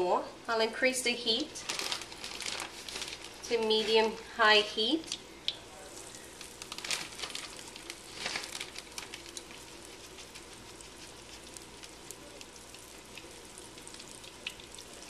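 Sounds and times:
chicken sizzling in oil: 5.2s - 15.0s.

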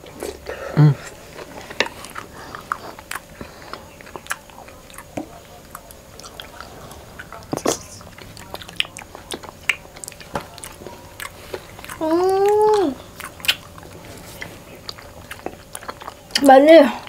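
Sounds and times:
wet mouth chewing clicks: 1.4s - 16.5s.

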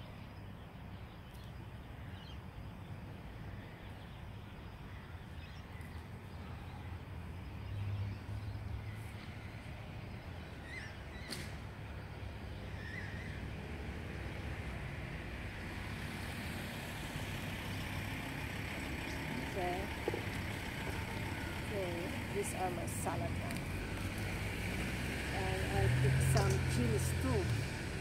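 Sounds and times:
stems snapping and rustling: 26.2s - 26.7s.

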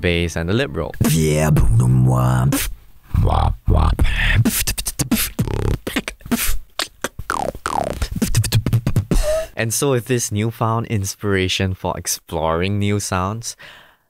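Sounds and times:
beatboxing: 1.0s - 9.6s.

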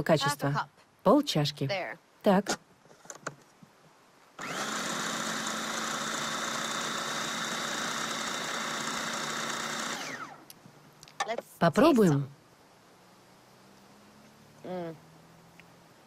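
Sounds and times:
food processor motor whining: 4.4s - 10.5s.

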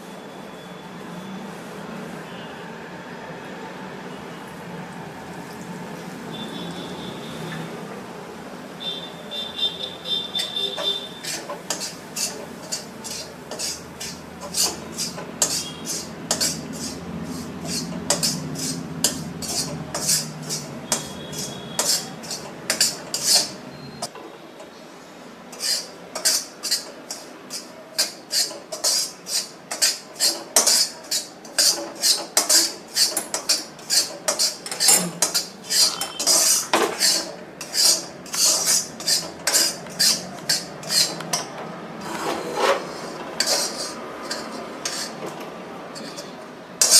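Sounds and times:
metal spatula scraping iron pan: 10.1s - 23.6s, 25.5s - 46.9s.

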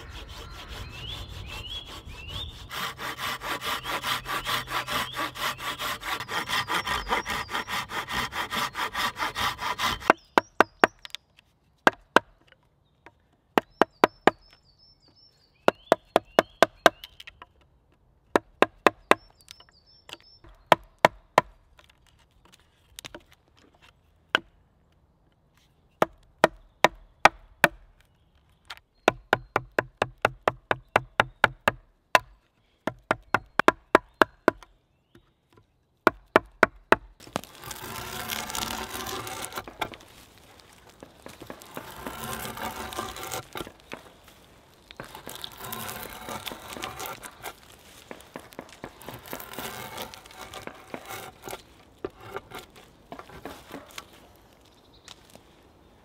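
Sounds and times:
saw cutting log: 0.0s - 11.0s, 36.1s - 54.4s
faint birdsong: 0.0s - 56.0s.

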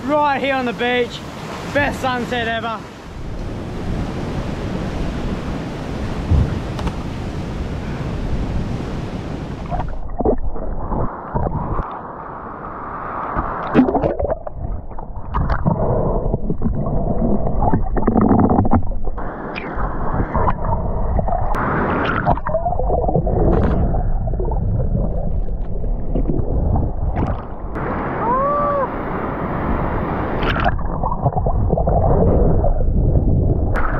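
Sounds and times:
ocean surf: 0.0s - 14.1s, 19.2s - 24.0s, 27.4s - 31.2s
wind on microphone: 3.0s - 11.9s, 12.7s - 33.9s
water gurgling and churning: 8.4s - 12.0s, 13.4s - 28.3s, 28.9s - 33.9s.

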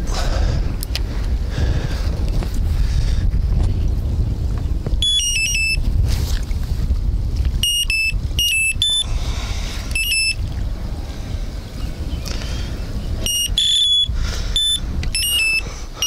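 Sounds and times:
low wind rumble on microphone: 0.0s - 16.0s
electronic bite alarm beeping: 5.0s - 5.8s, 7.6s - 9.1s, 10.0s - 10.4s, 13.2s - 15.7s.

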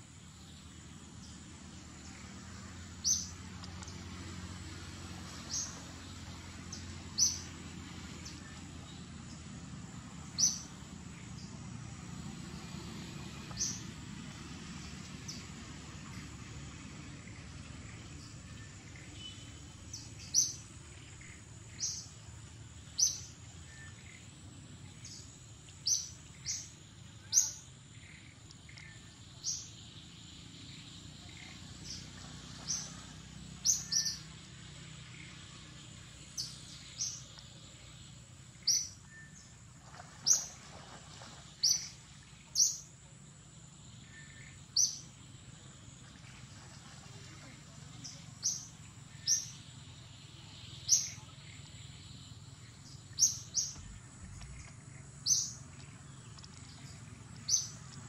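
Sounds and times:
low background rumble: 0.0s - 58.0s
bird chirping: 38.6s - 39.5s, 48.0s - 57.9s.

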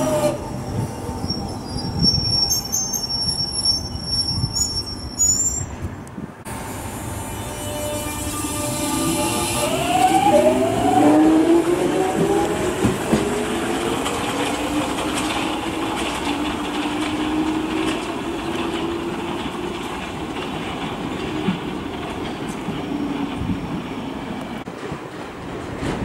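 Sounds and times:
rumble of train wheels: 0.0s - 26.0s
wheels clacking over rail joints: 9.8s - 26.0s.

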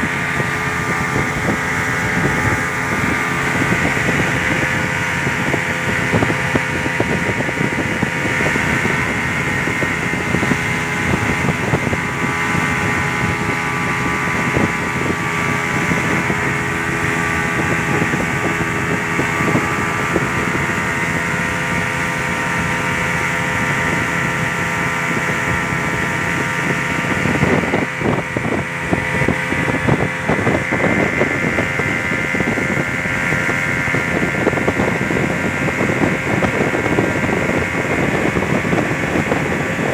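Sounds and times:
hull skimming the water: 0.0s - 39.9s
speedboat engine running: 0.0s - 39.9s.

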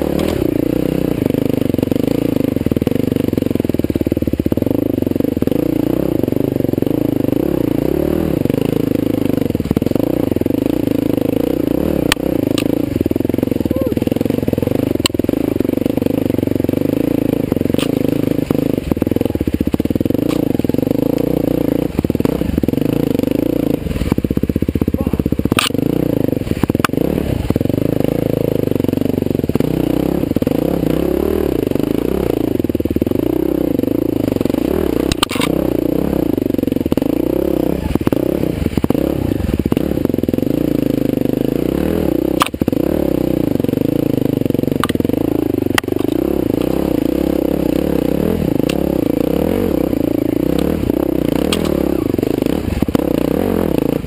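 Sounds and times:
dirt bike engine revving: 0.0s - 54.0s
sharp knocks and clatter: 17.5s - 18.6s, 44.7s - 46.9s, 50.5s - 51.9s.

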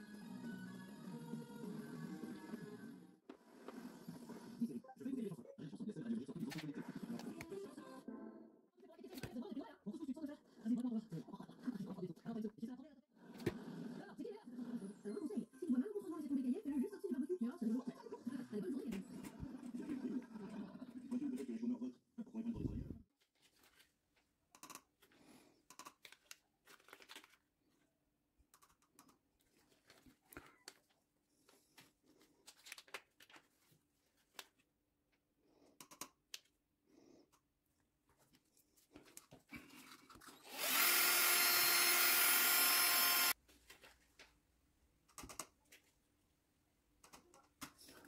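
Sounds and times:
small electric motor whirring: 40.2s - 43.4s.

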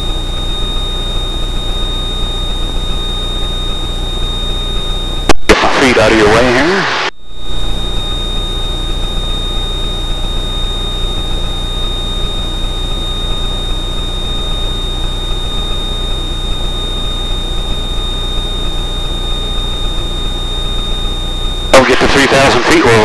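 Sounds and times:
thin high whine: 0.0s - 23.0s
airplane engine and propeller drone: 7.8s - 23.0s.

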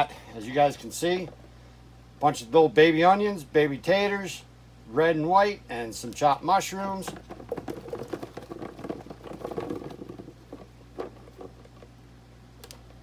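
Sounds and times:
potatoes tumbling into a pot: 6.6s - 12.0s.

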